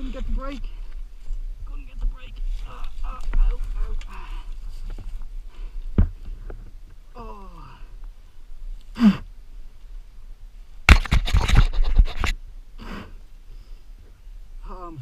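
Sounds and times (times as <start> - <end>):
scraping on microphone: 0.0 - 7.0, 10.9 - 12.4
heavy breathing: 4.0 - 6.5.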